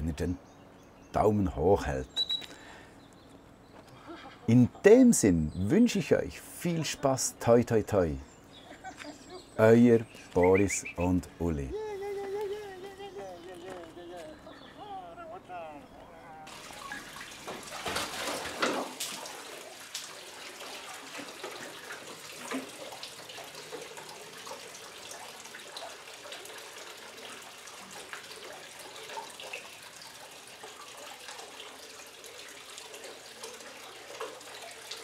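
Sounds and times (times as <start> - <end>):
water drips: 8.8 - 11.6, 16.5 - 35.0
tap water splashing into bucket: 16.5 - 35.0.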